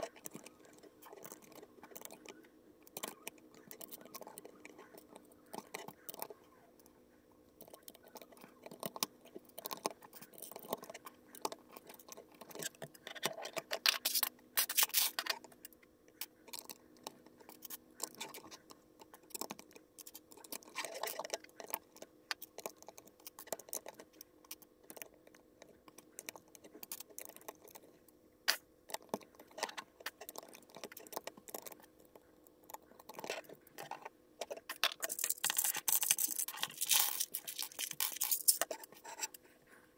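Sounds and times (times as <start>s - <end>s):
plastic bricks clicking: 33.0s - 38.8s.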